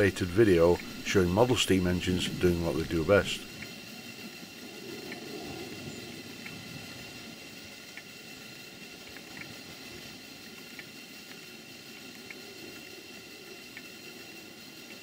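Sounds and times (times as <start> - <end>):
steam hissing and bubbling: 0.0 - 15.0
faint light ticks: 9.1 - 9.6.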